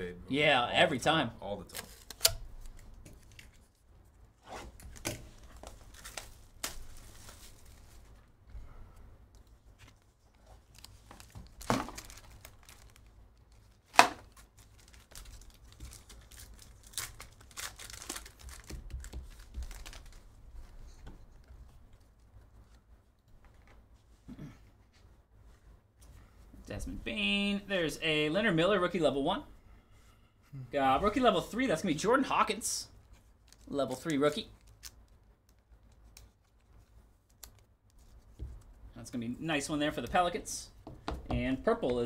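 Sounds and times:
packaging rustling and tearing: 4.7s - 8.2s, 9.8s - 20.8s
wrapper crinkling: 9.8s - 20.4s.

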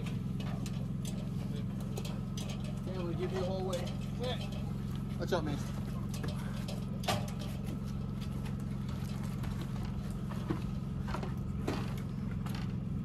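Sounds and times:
steady low hum: 0.0s - 13.0s
footsteps on wooden deck: 7.6s - 12.8s.

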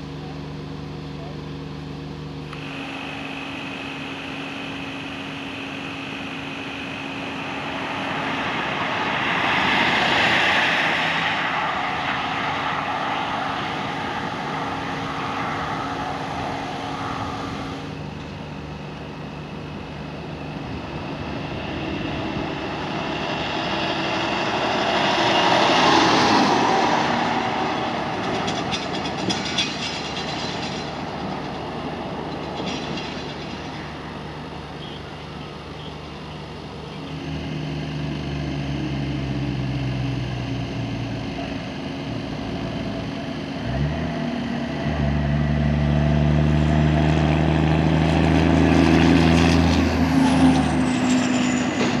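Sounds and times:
engine humming nearby: 0.0s - 52.0s
large vehicles driving past: 0.0s - 52.0s.

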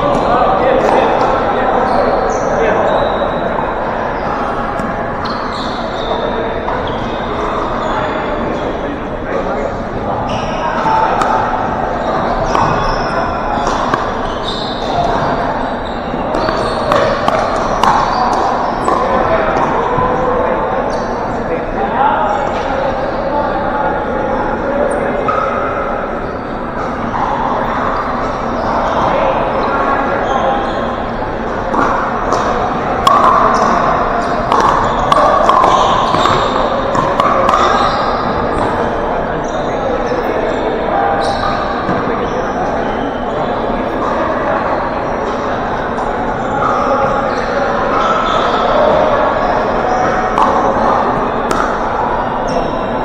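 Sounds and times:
background hall noise: 0.0s - 53.0s
indistinct chatter: 0.0s - 53.0s
paddles hitting plastic ball: 16.3s - 19.0s, 31.7s - 37.8s.

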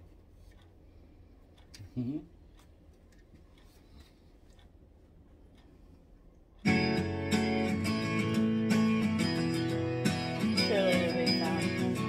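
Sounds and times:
strummed guitar music: 6.6s - 12.0s.

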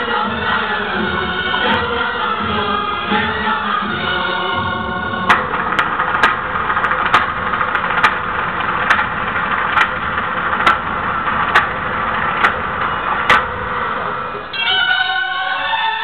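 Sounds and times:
live stage music: 0.0s - 16.0s
sharp percussive beat: 4.6s - 14.2s.

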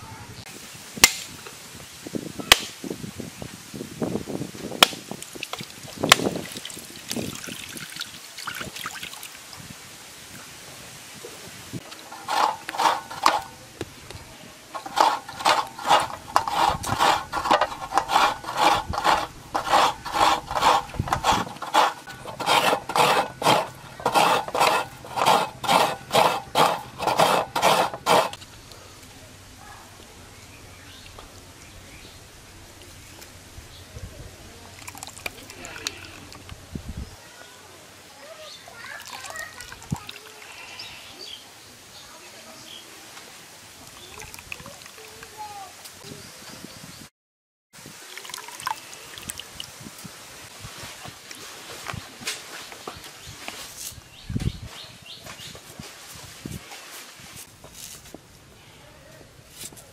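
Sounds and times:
coconut water running out: 4.8s - 9.4s, 14.7s - 28.4s, 34.6s - 36.5s, 38.8s - 40.5s, 43.8s - 45.7s, 47.8s - 50.1s
coconut scraping on metal grater: 12.0s - 13.6s, 14.7s - 28.4s.

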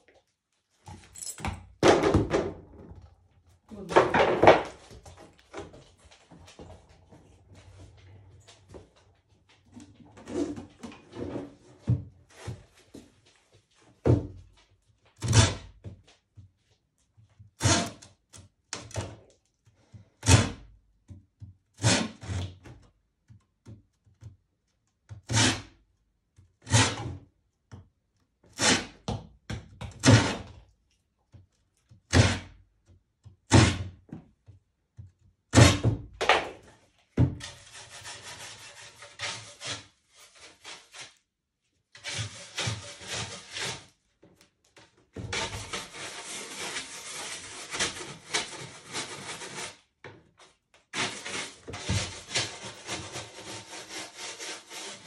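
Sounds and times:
metal scraper scraping canvas: 17.6s - 18.0s, 21.8s - 22.6s, 25.2s - 25.8s, 26.6s - 27.2s, 28.5s - 29.1s, 37.4s - 41.2s, 41.9s - 44.0s, 45.2s - 55.0s.

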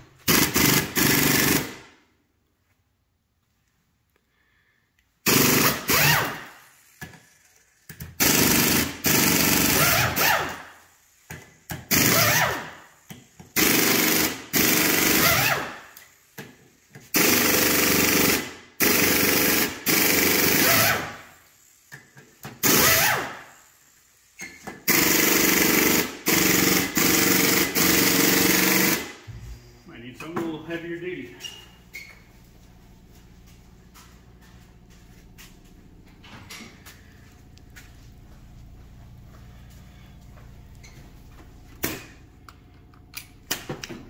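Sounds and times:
air tool rattling bursts: 0.2s - 1.9s, 5.2s - 29.3s
man talking: 29.8s - 31.6s.

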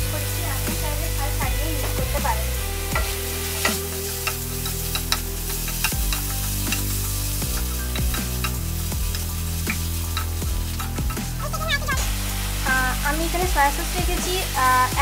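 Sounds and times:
food sizzling in oil: 0.0s - 15.0s
soft background music: 0.0s - 15.0s
utensil clicking against pan: 2.9s - 11.4s.

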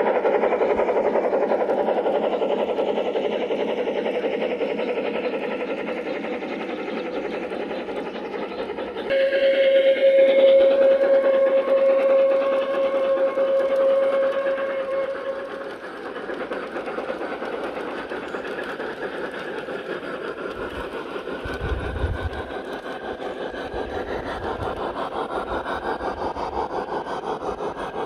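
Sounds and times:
model train whistle: 9.1s - 15.6s.

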